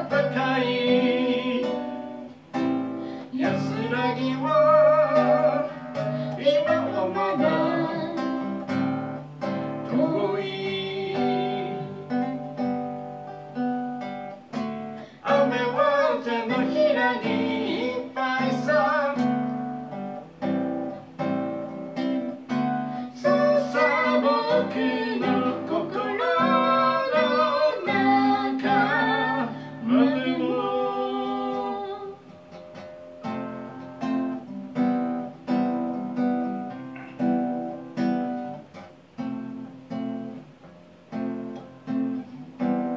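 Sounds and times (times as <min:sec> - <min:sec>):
man singing: 0:00.0 - 0:02.3, 0:03.3 - 0:08.4, 0:09.9 - 0:12.4, 0:15.2 - 0:19.4, 0:23.1 - 0:32.1
acoustic guitar strummed and picked: 0:00.0 - 0:42.9.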